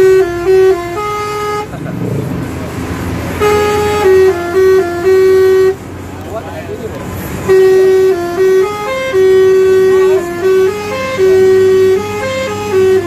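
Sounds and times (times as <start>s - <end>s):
musical air horn playing a tune: 0.0s - 1.7s, 3.3s - 5.8s, 7.4s - 13.0s.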